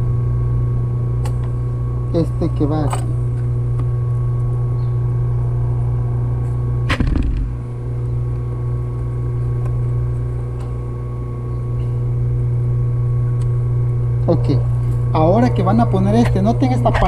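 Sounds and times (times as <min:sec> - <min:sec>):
low electric hum: 0:00.0 - 0:17.0.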